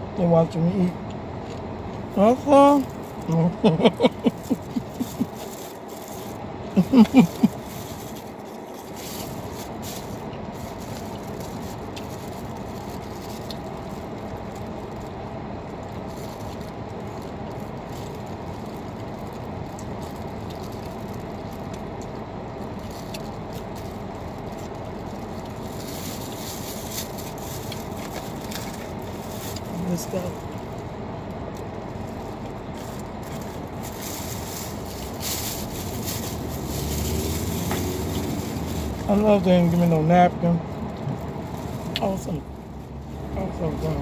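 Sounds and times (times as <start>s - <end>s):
car engine idling hum: 0.0s - 44.0s
biting and chewing: 4.1s - 29.7s, 30.4s - 39.1s.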